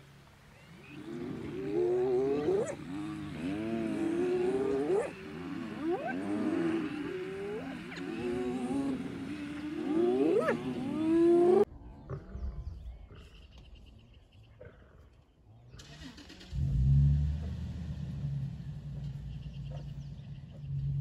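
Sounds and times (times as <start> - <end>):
hyenas moaning calls: 0.6 - 13.4.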